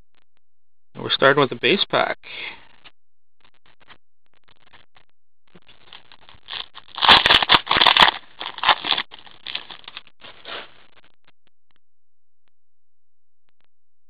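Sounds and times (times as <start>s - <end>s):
foil wrapper crackling: 5.6s - 10.8s.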